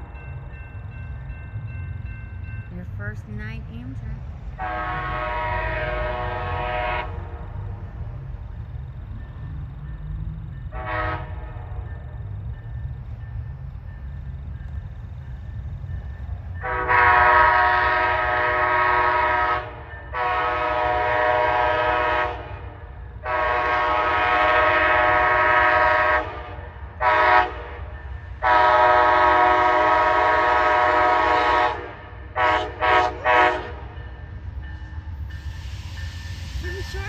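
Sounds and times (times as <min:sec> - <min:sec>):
approaching train rumble: 0:00.0 - 0:37.0
locomotive air horn blasts: 0:04.6 - 0:07.3, 0:10.7 - 0:11.6, 0:16.6 - 0:33.9.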